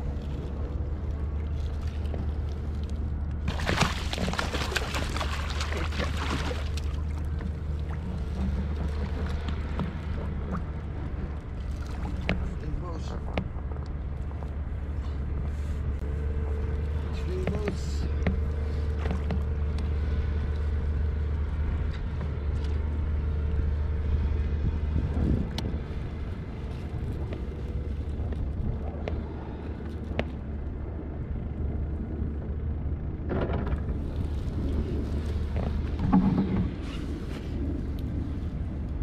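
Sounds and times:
water splashing: 3.4s - 12.8s
wind on microphone: 24.2s - 32.4s.

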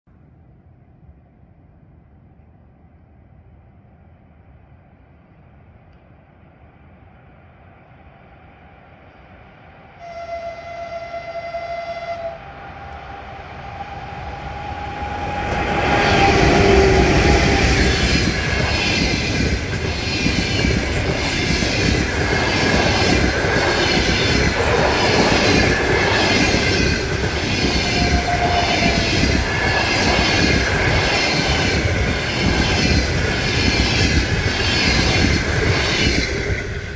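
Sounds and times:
train passing: 0.2s - 36.9s
train horn: 10.0s - 17.9s, 27.7s - 29.5s.

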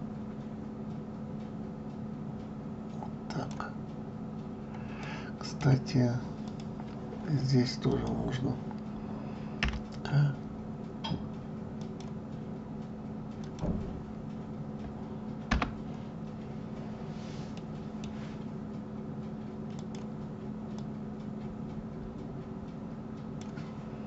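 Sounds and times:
low electrical hum: 0.0s - 24.0s
keyboard and mouse clicks: 9.6s - 10.0s, 19.7s - 20.1s.

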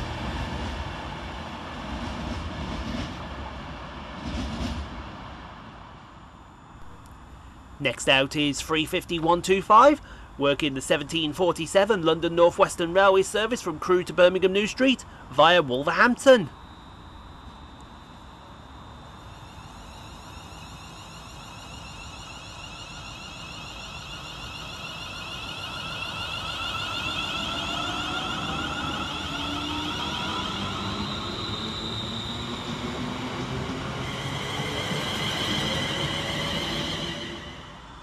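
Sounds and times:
electric train motors whining: 16.5s - 38.0s.

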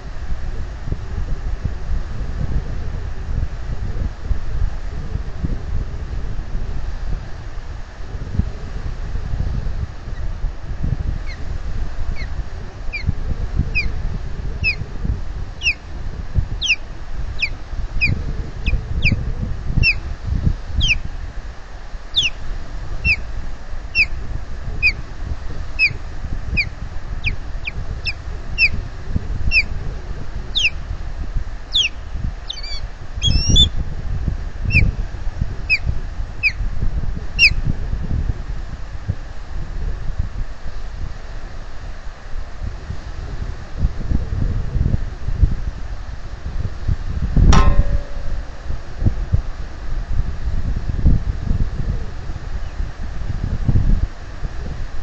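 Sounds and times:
wind rumble on microphone: 0.0s - 55.0s
bird whistled chirps: 22.2s - 22.4s, 30.6s - 30.8s, 31.7s - 33.7s.

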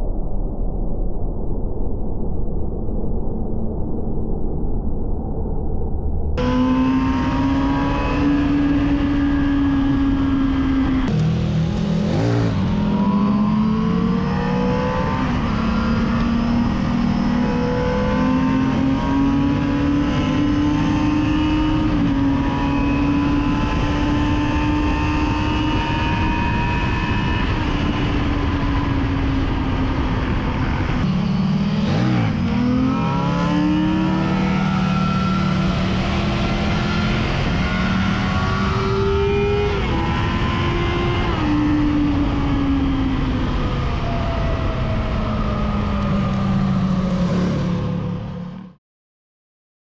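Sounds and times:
wind noise: 0.0s - 48.1s
motorcycle engine at high revs: 6.4s - 48.8s.

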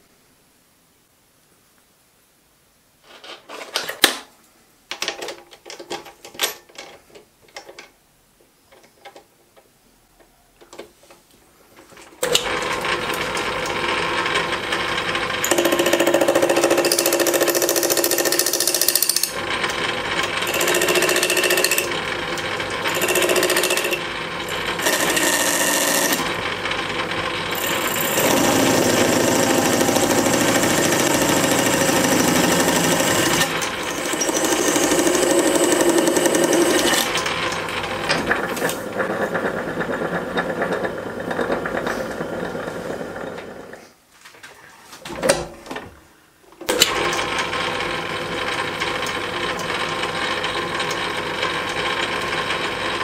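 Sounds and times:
metal parts clicking and knocking: 4.9s - 8.0s
metal lathe running: 12.4s - 43.6s.

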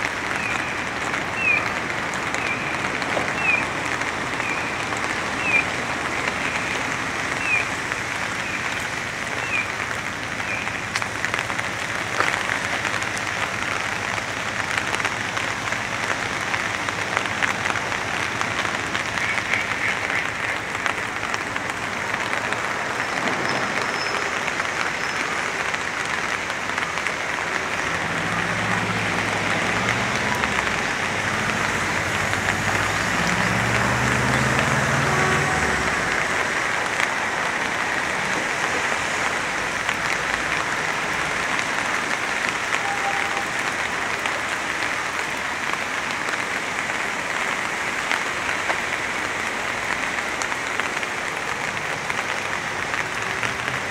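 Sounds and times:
vehicle engine rumble: 0.0s - 42.2s
steady rain falling: 0.0s - 53.9s.

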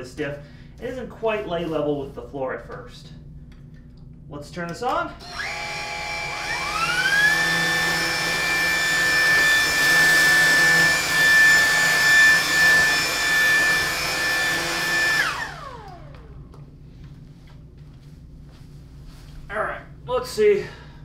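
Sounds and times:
stick vacuum motor whine: 5.2s - 16.6s.

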